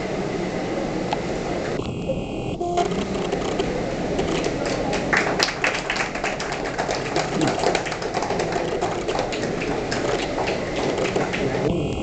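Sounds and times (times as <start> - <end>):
small group applauding: 4.3 - 11.8.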